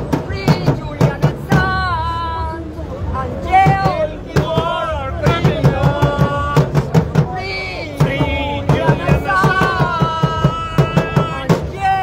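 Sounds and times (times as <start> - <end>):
barrel drum beaten quickly: 3.6 - 12.0
melody over drum beat: 8.0 - 11.6.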